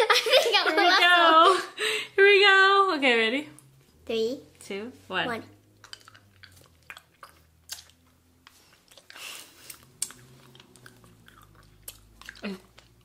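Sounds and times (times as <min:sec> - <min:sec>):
wet mouth clicks and smacks: 0:05.7 - 0:13.0.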